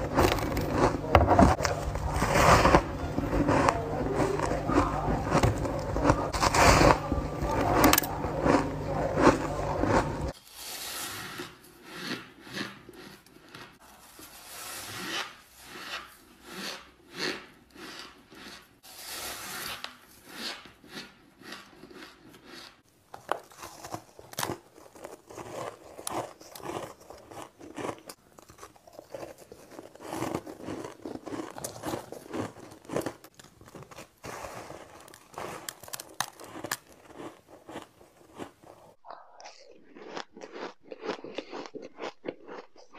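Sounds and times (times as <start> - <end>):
deep rumble: 0.0 - 10.3
ice being chewed crunching: 0.0 - 10.4, 11.4 - 14.4, 16.0 - 18.8, 20.1 - 42.9.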